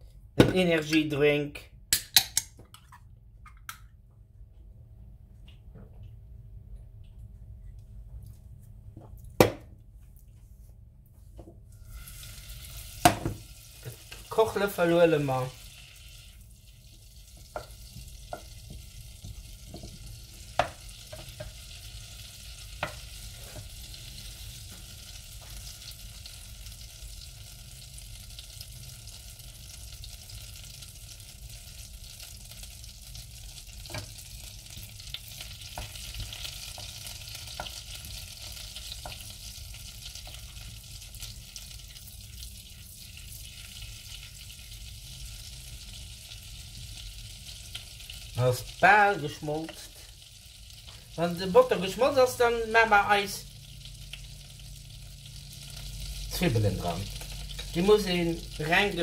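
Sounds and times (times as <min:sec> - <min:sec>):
butter sizzling in a saucepan: 0:11.7 - 0:59.0
wooden spoon knocking on pan: 0:13.0 - 0:13.4, 0:17.4 - 0:21.6, 0:22.8 - 0:23.7.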